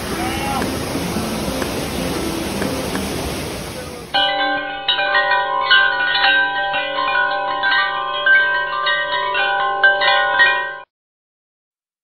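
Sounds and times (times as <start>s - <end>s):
wind chimes ringing: 4.1s - 10.9s.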